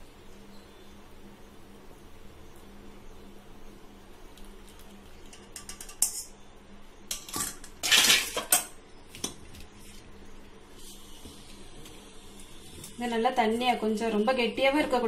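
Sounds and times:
metal pan clattering on stove: 5.3 - 6.3.

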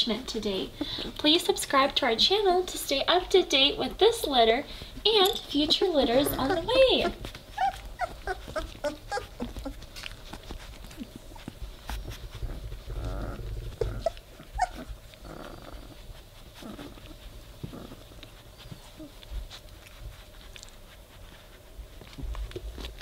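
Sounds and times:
puppies whimpering: 5.1 - 19.7.

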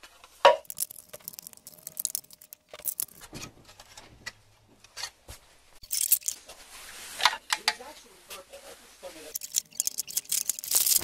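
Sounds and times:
plastic pieces clattering on wood: 0.5 - 4.0, 5.8 - 6.4, 9.3 - 11.0.

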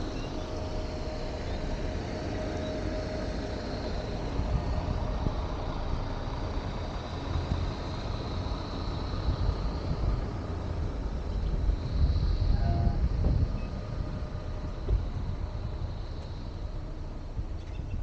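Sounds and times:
moving vehicle rumble: 0.0 - 18.0.

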